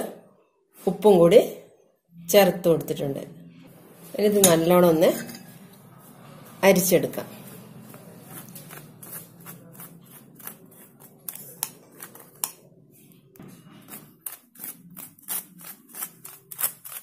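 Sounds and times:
spatula scraping through mesh sieve: 3.7s - 12.5s.

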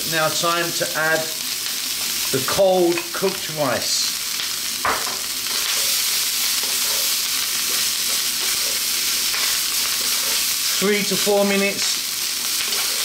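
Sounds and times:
rice sizzling in a wok: 0.0s - 13.0s
wooden spatula scraping wok: 5.4s - 11.3s, 12.6s - 13.0s.

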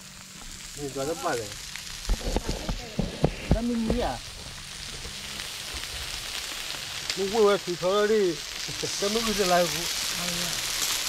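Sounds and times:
food sizzling on grill: 0.0s - 11.0s
knocks and thumps: 2.1s - 4.1s.

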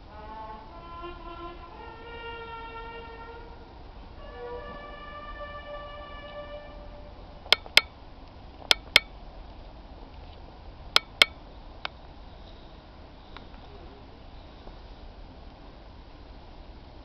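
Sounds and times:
held musical note: 4.2s - 7.8s
sharp ringing clicks: 7.5s - 7.9s, 8.7s - 9.1s, 11.0s - 11.4s.

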